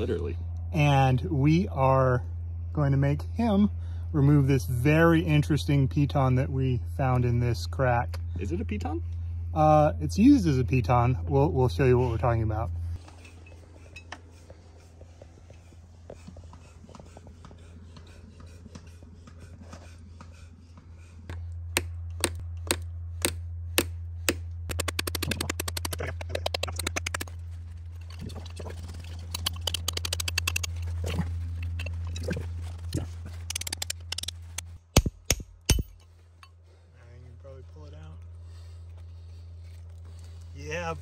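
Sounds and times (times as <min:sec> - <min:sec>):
steady low hum: 0:00.0 - 0:41.0
hammer striking iron spike: 0:33.5 - 0:36.0.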